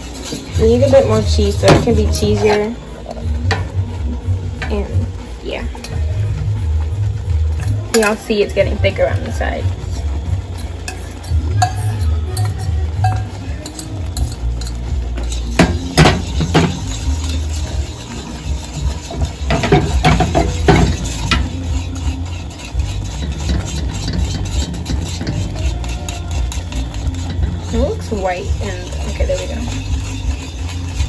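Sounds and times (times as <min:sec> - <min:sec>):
fork scraping and clinking on pan: 0:00.0 - 0:03.8, 0:10.2 - 0:31.0.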